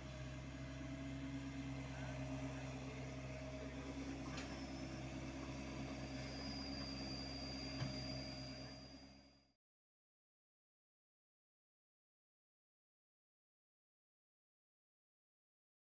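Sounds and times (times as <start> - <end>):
excavator diesel engine running: 0.0 - 9.3.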